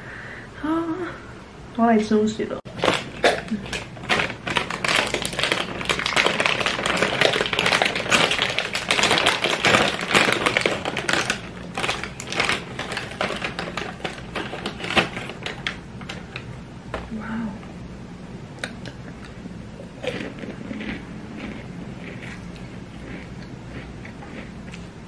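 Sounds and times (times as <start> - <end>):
plastic snack bag crinkling: 2.7 - 16.5, 20.0 - 24.5.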